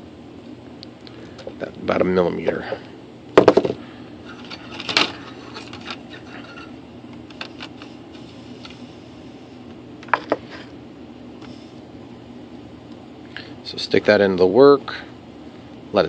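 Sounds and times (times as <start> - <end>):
faint steady hum: 0.0 - 16.0
tools knocking on wooden bench: 3.4 - 3.8.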